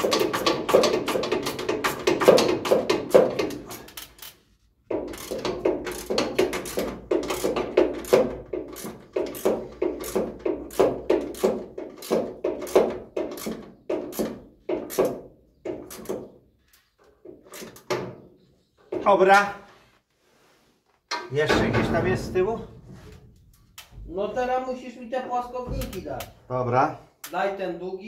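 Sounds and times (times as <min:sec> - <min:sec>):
ratchet wrench clicking: 0:05.0 - 0:09.4.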